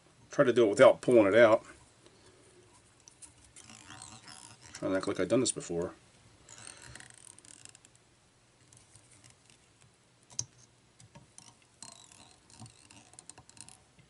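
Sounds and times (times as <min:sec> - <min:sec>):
thread rustling: 0:02.6 - 0:05.5, 0:06.3 - 0:14.0.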